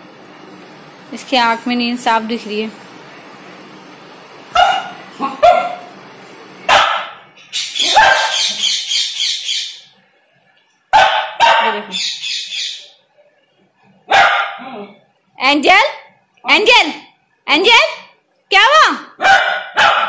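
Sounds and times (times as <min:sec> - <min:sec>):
puppy barking and yelping: 0:04.6 - 0:05.9, 0:06.7 - 0:09.0, 0:14.1 - 0:14.6, 0:19.2 - 0:20.0.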